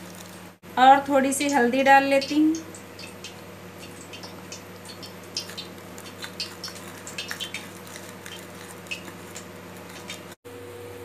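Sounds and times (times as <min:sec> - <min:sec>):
batter squelching in bowl: 0:02.7 - 0:10.4.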